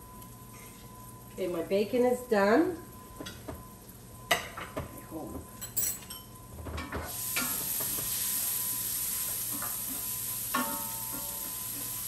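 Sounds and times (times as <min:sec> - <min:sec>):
kitchen utensils clinking: 0:05.6 - 0:07.1, 0:10.5 - 0:11.5
food sizzling in a skillet: 0:07.1 - 0:12.0.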